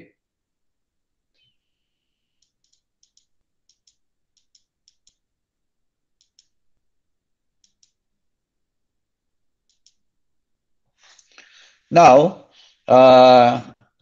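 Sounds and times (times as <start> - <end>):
faint computer mouse clicks: 2.4 - 5.2, 6.2 - 6.6, 7.6 - 8.0, 9.7 - 10.0.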